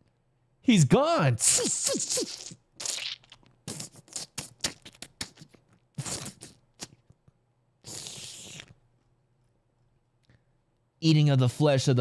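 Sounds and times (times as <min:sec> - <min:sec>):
mouth hissing: 0:01.4 - 0:07.0, 0:07.8 - 0:08.8
tongue clicks: 0:02.3 - 0:08.8.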